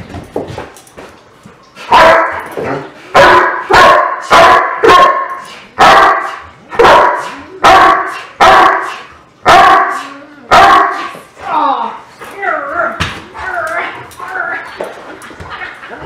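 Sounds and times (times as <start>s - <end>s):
dog barking: 1.9s - 2.4s, 3.2s - 11.1s.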